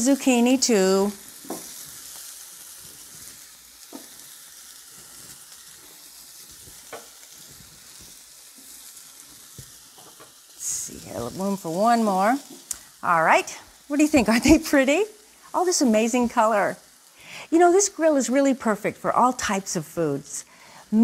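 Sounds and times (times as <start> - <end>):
steak sizzling on electric grill: 0.0 - 21.0.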